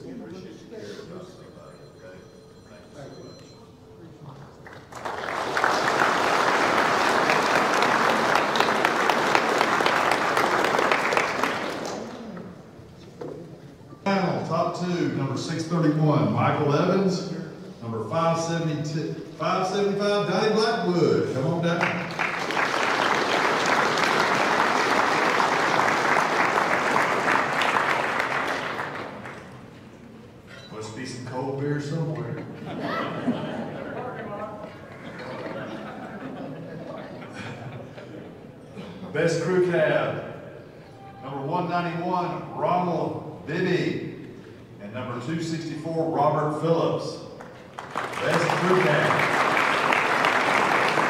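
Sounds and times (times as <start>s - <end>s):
audience applauding: 4.6s - 12.3s, 21.8s - 29.7s, 47.4s - 51.0s.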